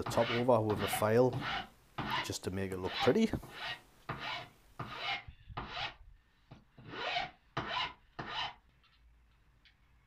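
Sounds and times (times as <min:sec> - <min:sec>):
metal file stroking plywood edge: 0:00.0 - 0:06.0, 0:06.7 - 0:08.6.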